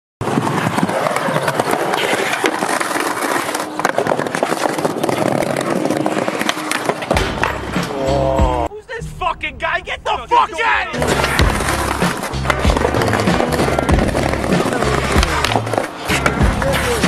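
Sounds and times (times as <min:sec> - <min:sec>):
skateboard clacks and knocks: 0:00.2 - 0:07.8, 0:11.0 - 0:17.0
skateboard wheels rolling on concrete: 0:00.2 - 0:08.2, 0:11.0 - 0:17.0.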